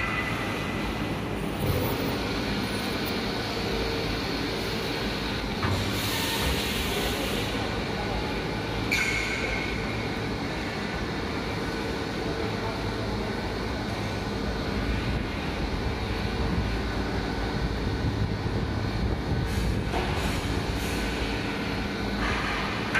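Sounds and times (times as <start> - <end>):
furnace line rumble and hum: 0.0 - 22.9
hiss: 5.7 - 7.6.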